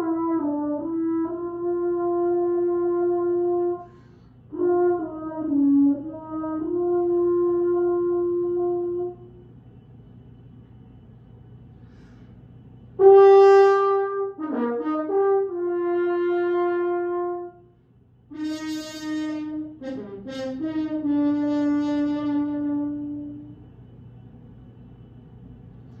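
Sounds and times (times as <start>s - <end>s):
solo french horn: 0.0s - 9.6s, 13.0s - 23.7s.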